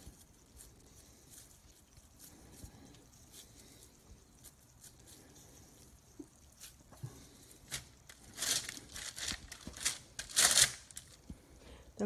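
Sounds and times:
wax paper crinkling: 0:00.0 - 0:11.4.

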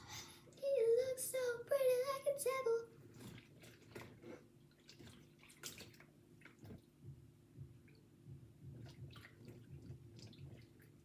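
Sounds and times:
low steady hum: 0:00.0 - 0:11.0
water dripping in sink: 0:03.2 - 0:11.0.

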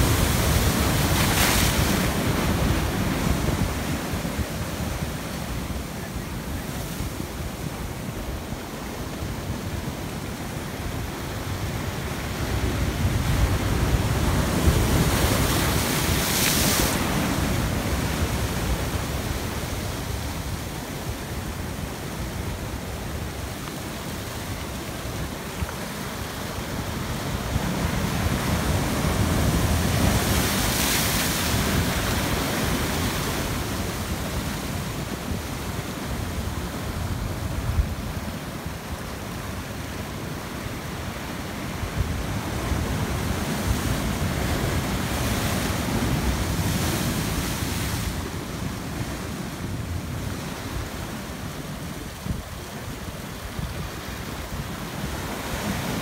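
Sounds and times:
surf breaking on rocky shore: 0:00.0 - 0:40.9.

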